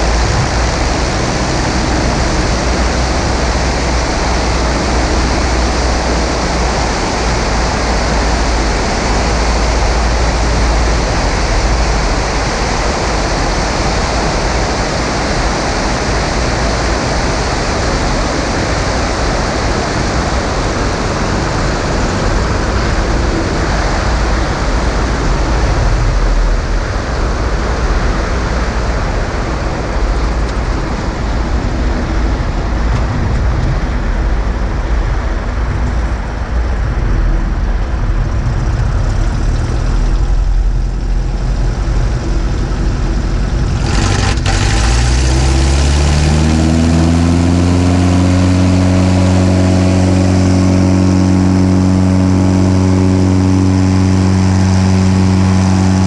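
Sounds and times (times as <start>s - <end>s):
low wind buffeting: 0.0s - 56.0s
wind rushing on camera: 0.0s - 56.0s.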